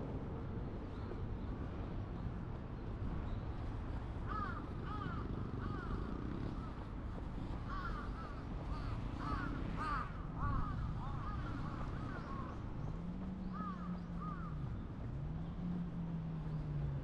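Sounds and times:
crows cawing: 4.3 - 6.0, 7.7 - 12.4, 13.6 - 14.5.

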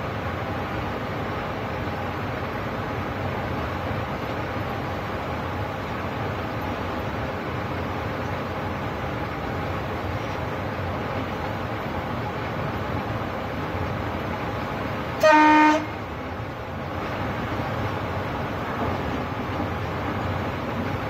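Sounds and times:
train rumbling: 0.0 - 21.0
train horn blast: 15.2 - 16.0.

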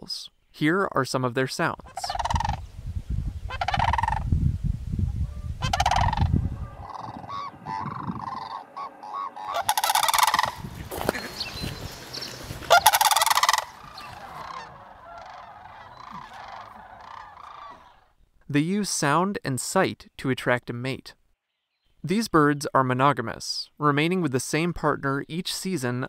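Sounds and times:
cranes calling: 1.8 - 2.6, 3.5 - 4.3, 5.2 - 18.1
low rumble: 1.8 - 9.7.

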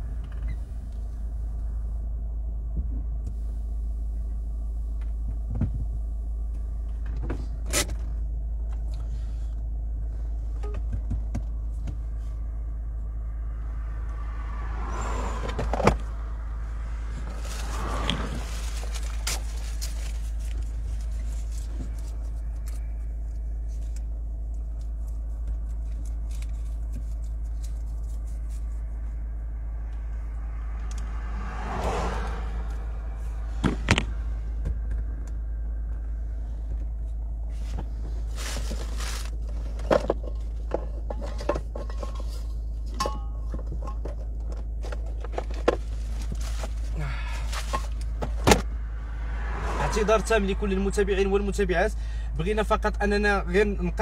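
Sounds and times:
car engine idling: 0.0 - 54.0
clicks and knocks inside car: 5.0 - 6.0, 10.6 - 12.2, 37.6 - 46.9.

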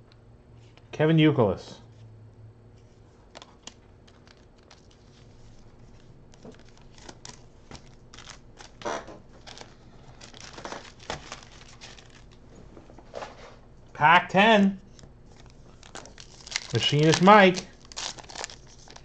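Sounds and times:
cards being handled: 2.8 - 12.5, 14.8 - 19.0
foil wrappers crinkling: 3.3 - 12.5, 14.8 - 19.0.

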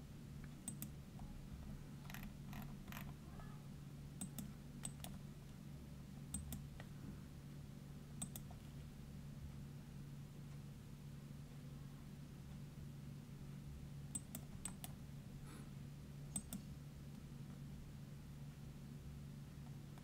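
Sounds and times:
steady low hum: 0.0 - 20.0
mouse and keyboard clicks: 2.1 - 3.2, 8.2 - 8.6.

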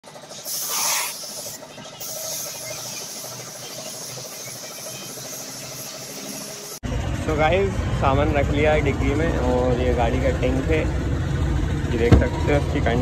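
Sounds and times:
paint spray gun hissing: 0.1 - 6.8.

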